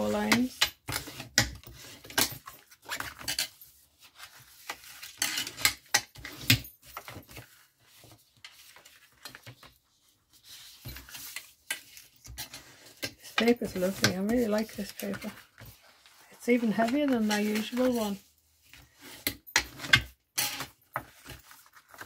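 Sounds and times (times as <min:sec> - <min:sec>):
paper crackling: 0:13.6 - 0:18.3.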